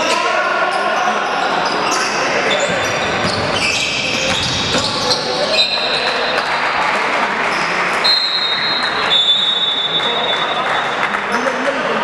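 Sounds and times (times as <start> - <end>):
sneakers squeaking: 0.0 - 6.6, 7.5 - 11.1
basketball bouncing: 2.6 - 5.1.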